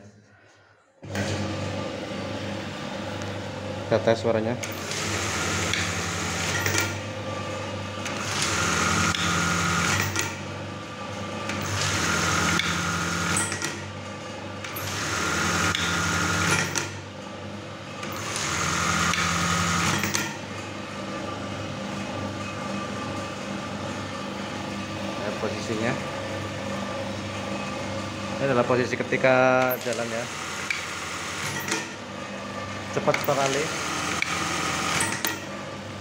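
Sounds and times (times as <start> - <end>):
sewing machine running: 4.6 - 7.1, 8.0 - 10.4, 11.3 - 13.9, 14.6 - 17.0, 18.0 - 20.5, 29.3 - 32.0, 32.9 - 35.6.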